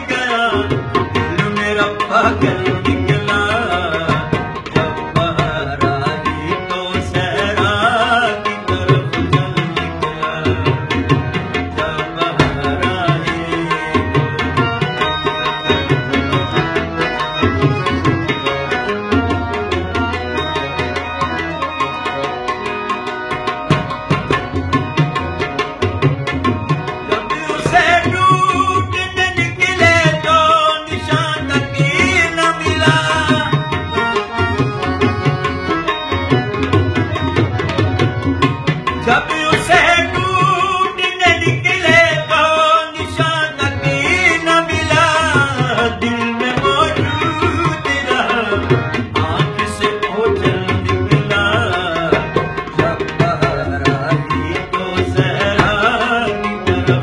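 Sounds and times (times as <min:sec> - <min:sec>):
harmonium: 0:00.0 - 0:57.0
tabla: 0:00.0 - 0:57.0
man singing folk song: 0:01.3 - 0:10.7, 0:11.8 - 0:14.1, 0:27.2 - 0:33.5, 0:39.0 - 0:57.0.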